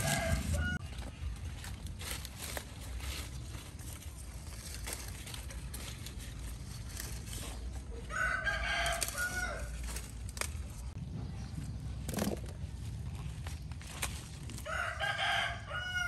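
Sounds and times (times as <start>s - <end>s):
rooster crowing: 0.0s - 0.8s, 8.0s - 9.8s, 14.6s - 16.0s
leafy greens snapping: 1.3s - 11.0s.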